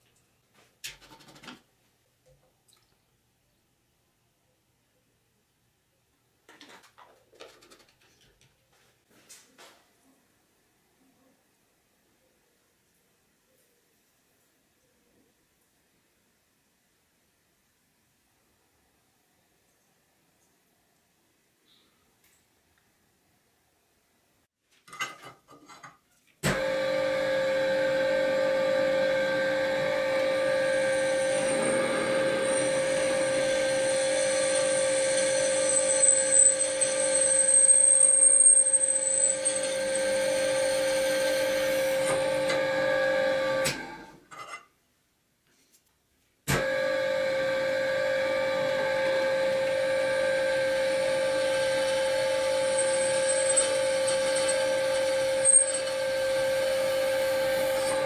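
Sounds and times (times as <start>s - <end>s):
drill press motor hum: 26.5s - 44.1s, 46.6s - 58.0s
drill bit cutting metal squealing: 30.4s - 41.9s, 51.3s - 58.0s.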